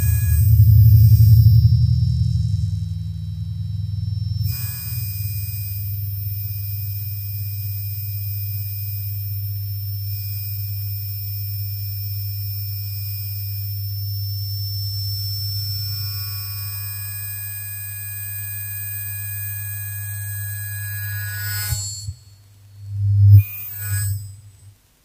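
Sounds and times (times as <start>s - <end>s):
electronic drone music: 0.0s - 5.0s.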